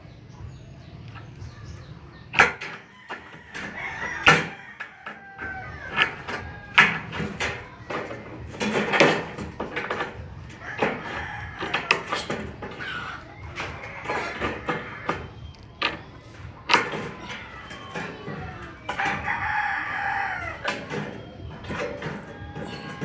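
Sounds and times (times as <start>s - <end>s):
rooster crowing: 2.8s - 7.8s, 10.5s - 15.2s, 17.3s - 23.0s.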